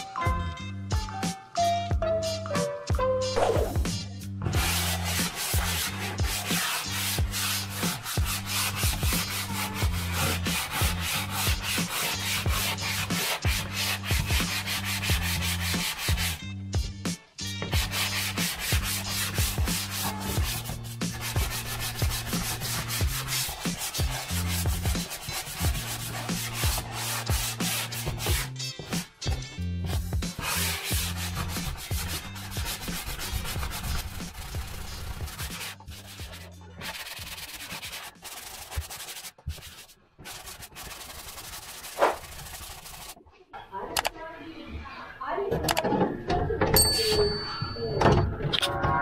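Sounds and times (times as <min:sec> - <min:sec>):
hand sanding drywall: 0:04.5 - 0:16.4, 0:17.6 - 0:29.2, 0:29.9 - 0:43.2.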